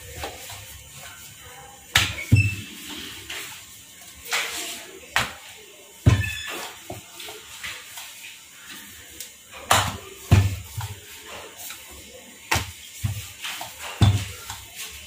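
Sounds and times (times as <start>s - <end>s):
rolling pin on dough: 0.0s - 15.0s
board knocking on counter: 6.0s - 7.0s, 9.7s - 11.0s, 14.0s - 14.6s.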